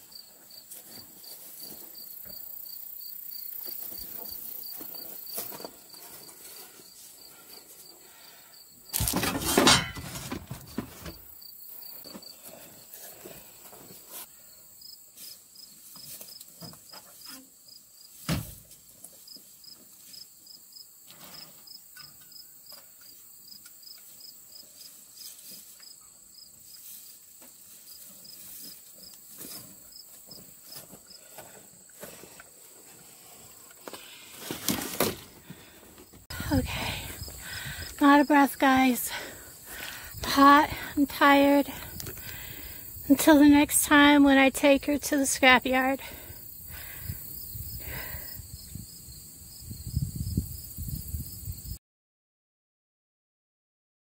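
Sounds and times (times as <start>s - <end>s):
insects chirping: 0.0s - 9.2s, 11.0s - 18.2s, 19.2s - 32.0s, 35.1s - 51.8s.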